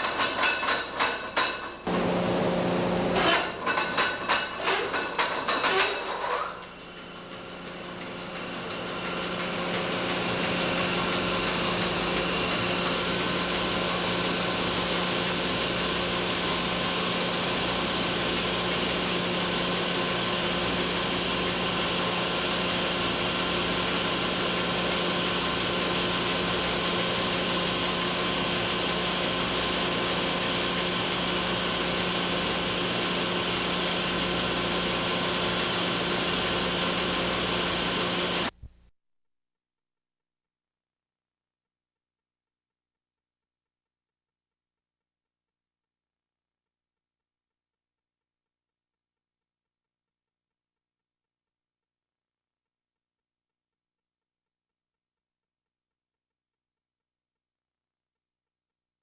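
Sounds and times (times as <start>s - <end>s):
crusher machine running: 1.9s - 38.5s
thin high whine: 5.6s - 18.0s.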